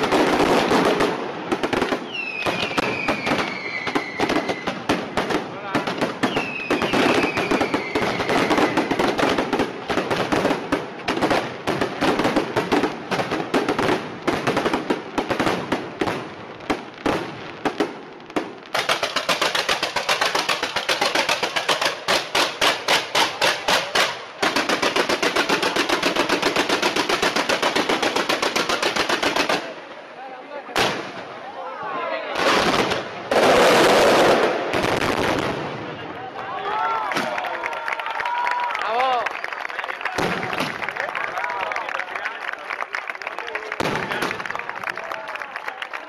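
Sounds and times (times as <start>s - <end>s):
fireworks bangs and crackling: 0.0s - 46.0s
falling firework whistle: 2.0s - 4.8s, 6.3s - 9.0s.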